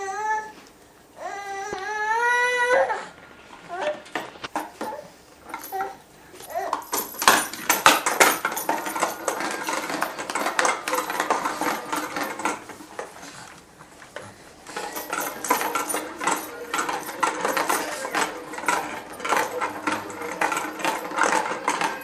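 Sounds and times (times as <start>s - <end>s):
plastic balls rattling through toy: 4.5s - 13.3s, 14.1s - 22.0s.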